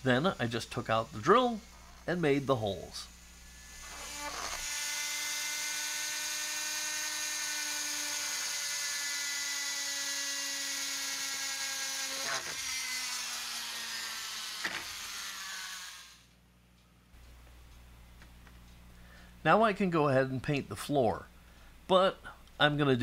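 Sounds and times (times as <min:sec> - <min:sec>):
rotary tool motor whine: 0:03.1 - 0:16.3.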